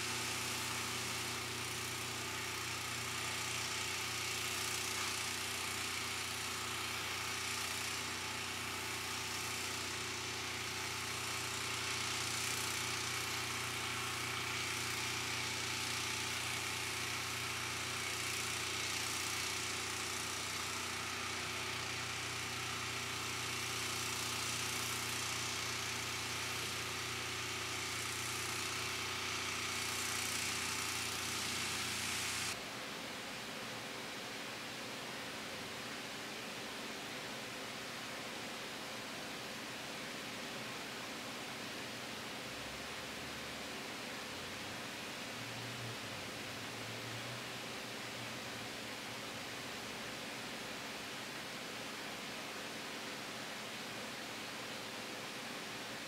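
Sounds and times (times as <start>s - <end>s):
machine motor humming with hiss: 0.0s - 32.8s.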